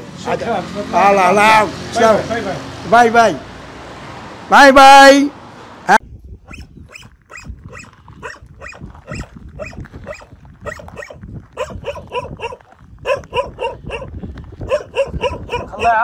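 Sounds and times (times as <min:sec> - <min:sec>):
dog barking rapidly: 0:06.5 - 0:16.0.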